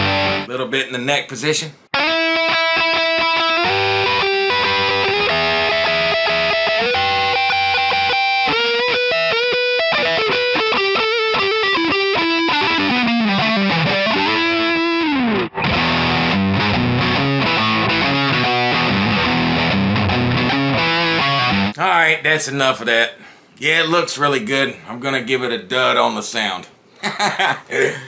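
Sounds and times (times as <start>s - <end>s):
chugging guitar chords: 0.0s - 0.5s, 1.9s - 21.8s
distorted electric guitar lead: 0.0s - 0.5s, 2.0s - 21.8s.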